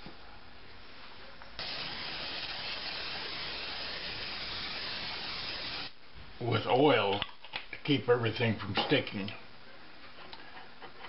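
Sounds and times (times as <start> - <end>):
spray can hissing: 1.6 - 6.0.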